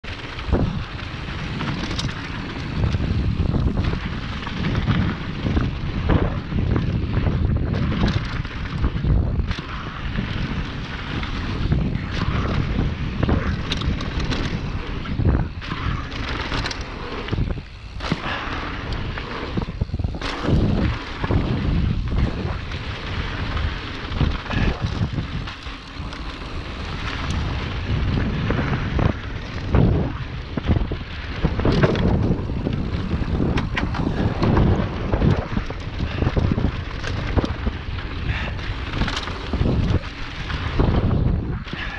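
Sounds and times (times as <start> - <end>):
bike knocks and rattles: 0.0 - 41.9
wind on microphone: 0.0 - 41.9.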